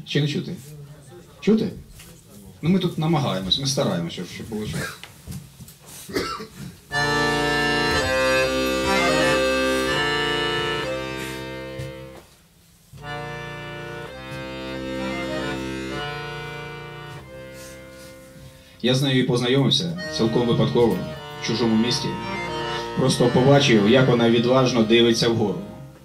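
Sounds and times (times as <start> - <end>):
piano accordion playing: 6.9 - 12.3, 13.0 - 26.0.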